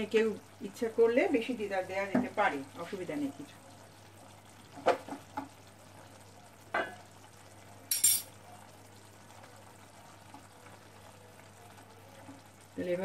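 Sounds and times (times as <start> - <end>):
curry simmering with faint sizzle: 0.0 - 13.0
spatula stirring in a pan: 4.6 - 5.9
sharp metallic clink: 7.9 - 8.3.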